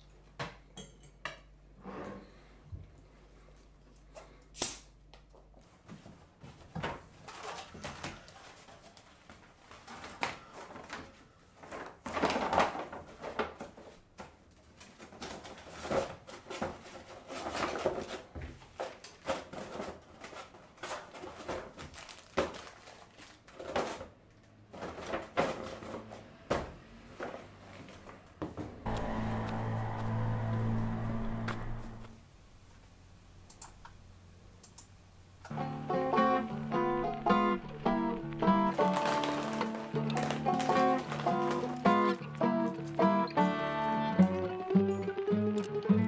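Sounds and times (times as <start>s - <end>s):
paper bag rustling: 7.1s - 24.1s, 36.4s - 43.2s
plastic containers clicking and knocking: 37.8s - 42.5s.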